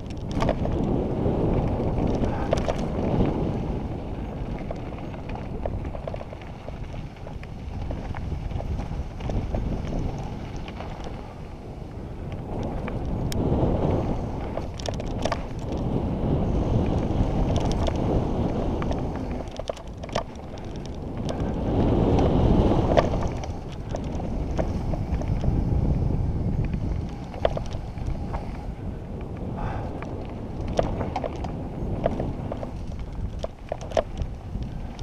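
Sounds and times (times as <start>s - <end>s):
sharp clicks and rattles: 0.0s - 3.1s, 14.4s - 15.9s, 16.8s - 18.1s, 18.8s - 22.2s, 30.0s - 35.0s
wind buffeting microphone: 0.0s - 35.0s.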